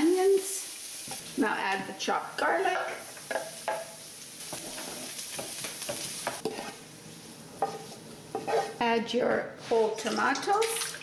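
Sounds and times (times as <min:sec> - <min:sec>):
onion sizzling in a frying pan: 0:00.0 - 0:11.0
knife scraping cutting board: 0:04.5 - 0:06.8, 0:07.6 - 0:08.8.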